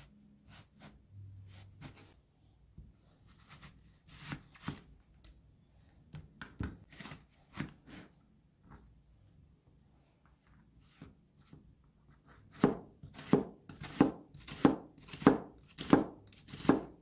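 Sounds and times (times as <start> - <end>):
knife slicing vegetables: 3.2 - 4.9, 12.2 - 17.0.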